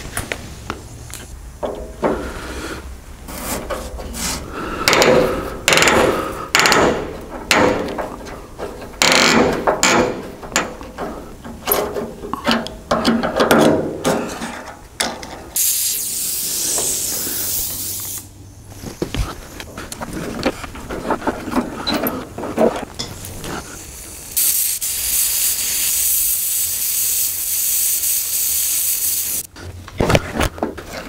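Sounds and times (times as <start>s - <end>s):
screwdriver scraping rusty bolts: 3.3s - 15.6s
steady hiss: 15.5s - 20.0s, 23.2s - 29.5s.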